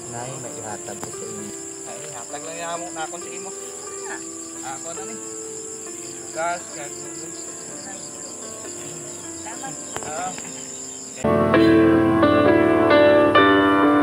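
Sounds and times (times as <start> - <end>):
insects trilling: 0.0 - 14.0
bird chirps: 0.7 - 11.3.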